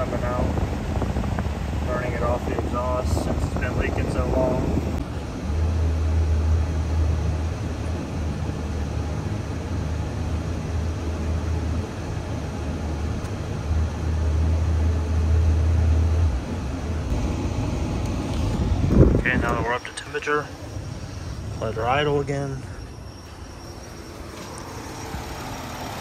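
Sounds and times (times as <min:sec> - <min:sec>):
engine droning inside car cabin: 0:00.0 - 0:26.0.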